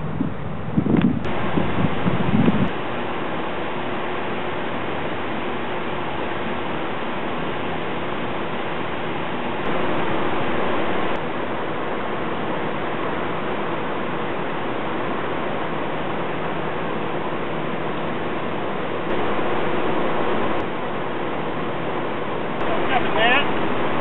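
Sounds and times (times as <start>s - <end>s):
turbulent water rushing: 1.2s - 24.0s.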